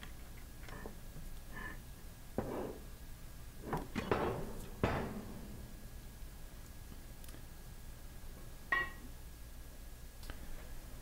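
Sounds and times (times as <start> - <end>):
metal clunks with ringing: 4.0 - 5.9.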